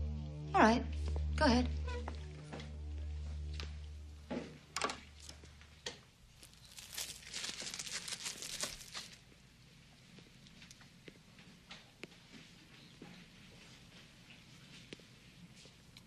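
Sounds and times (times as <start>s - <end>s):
low held music note: 0.0s - 4.3s
faint footsteps: 0.9s - 9.4s
rustling and crinkling: 5.1s - 9.4s.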